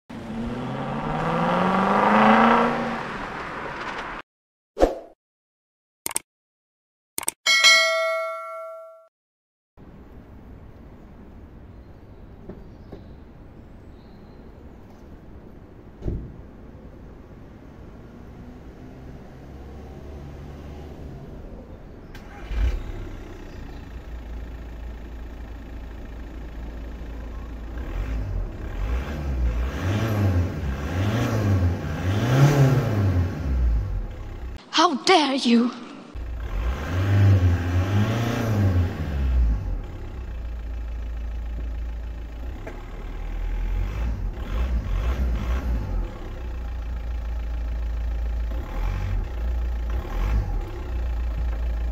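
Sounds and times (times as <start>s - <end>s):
car engine revving: 0.1s - 4.2s, 27.8s - 34.6s, 36.1s - 40.3s, 43.0s - 46.6s
diesel engine idling: 23.0s - 28.6s, 39.6s - 44.4s, 46.1s - 51.9s.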